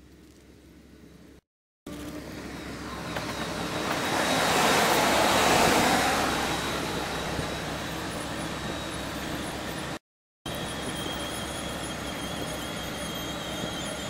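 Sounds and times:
electric locomotive passing: 1.9 - 14.0.

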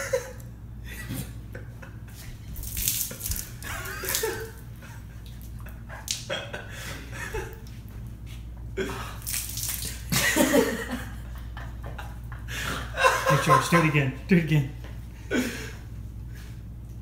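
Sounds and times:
milk pouring and splashing: 2.6 - 4.6, 9.1 - 10.4
people laughing: 10.1 - 14.1.

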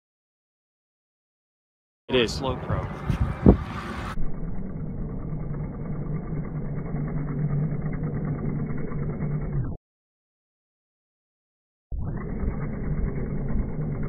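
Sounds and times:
low slowed-down drone: 2.1 - 9.8, 11.9 - 14.0.

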